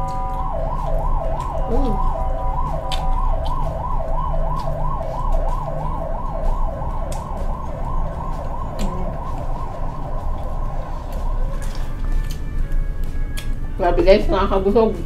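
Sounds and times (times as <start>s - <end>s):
chewing clicks: 0.0s - 5.5s, 6.9s - 7.6s, 11.1s - 13.6s
emergency siren yelping: 0.0s - 13.6s
low rumble: 0.0s - 14.4s.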